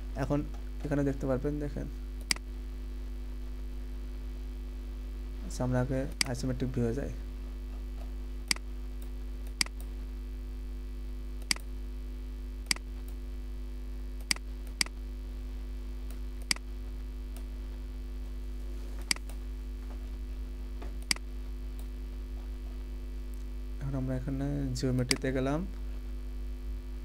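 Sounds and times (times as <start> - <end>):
electrical mains hum: 0.0 - 27.0
computer mouse clicking: 11.4 - 11.7, 12.7 - 13.2, 16.1 - 16.6, 19.0 - 19.4, 21.0 - 21.9.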